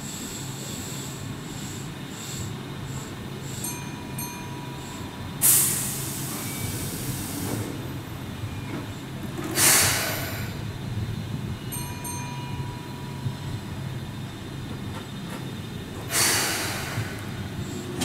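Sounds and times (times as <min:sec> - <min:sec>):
compressed air hissing: 0:00.0 - 0:03.8, 0:04.8 - 0:07.9, 0:09.5 - 0:10.7, 0:16.0 - 0:18.0
train humming: 0:00.0 - 0:18.0.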